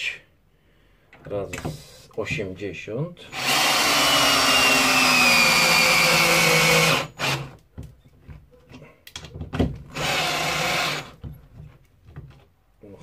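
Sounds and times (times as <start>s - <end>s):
drill motor driving a screw: 3.3s - 7.6s, 9.9s - 11.2s.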